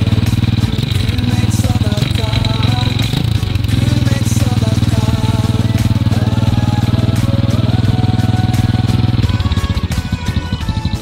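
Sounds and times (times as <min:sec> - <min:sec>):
background music: 0:00.0 - 0:11.0
motorcycle engine running: 0:00.0 - 0:11.0.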